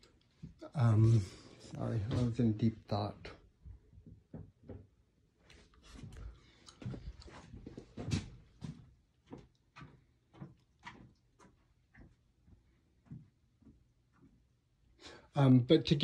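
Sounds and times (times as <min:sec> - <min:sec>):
footsteps walking: 0:00.4 - 0:02.8, 0:05.4 - 0:14.6.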